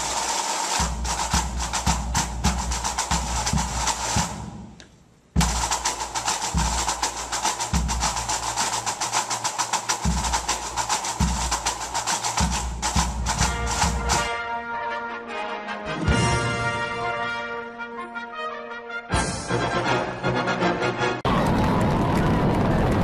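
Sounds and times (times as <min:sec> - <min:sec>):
fast drum and percussion music: 0:00.0 - 0:04.8, 0:05.4 - 0:14.4.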